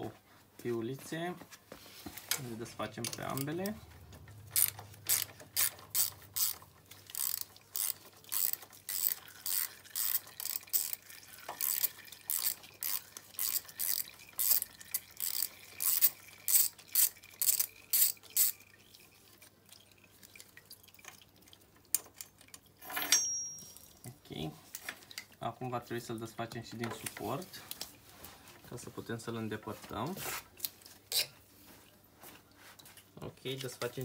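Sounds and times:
ratchet wrench clicking: 4.5s - 11.0s, 11.6s - 18.6s.

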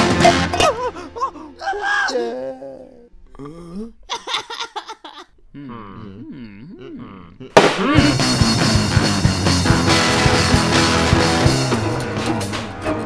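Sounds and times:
rock band playing: 0.0s - 0.8s, 8.0s - 13.0s.

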